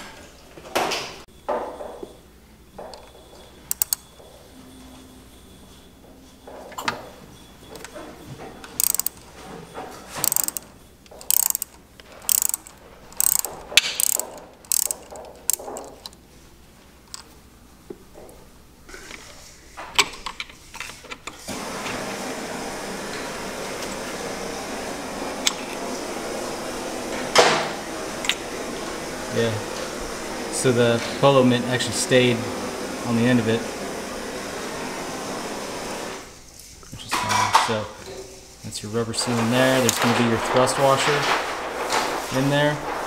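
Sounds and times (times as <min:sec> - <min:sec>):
socket ratchet clicking: 0:03.7 - 0:04.0, 0:08.8 - 0:09.2, 0:10.2 - 0:16.2.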